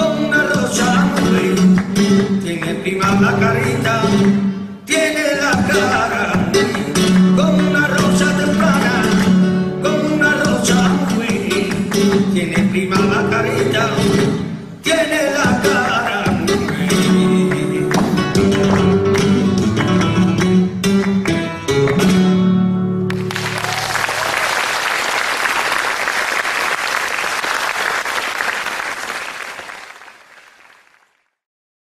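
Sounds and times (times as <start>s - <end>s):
flamenco guitar music: 0.0s - 24.2s
audience applause: 23.1s - 31.4s.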